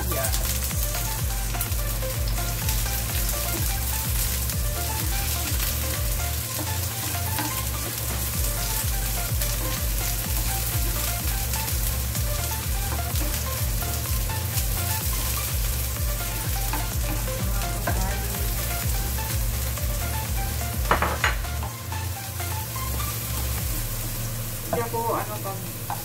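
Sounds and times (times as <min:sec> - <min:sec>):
onion sizzling in hot oil: 0:00.0 - 0:26.0.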